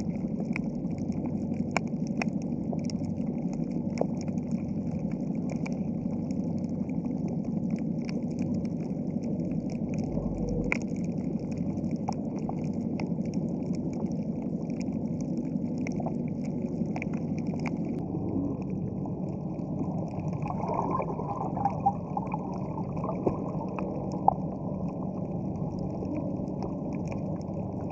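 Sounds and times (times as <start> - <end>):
crackle of sharp clicks: 0.0 - 22.3, 22.9 - 27.9
low rush of water: 17.0 - 27.9.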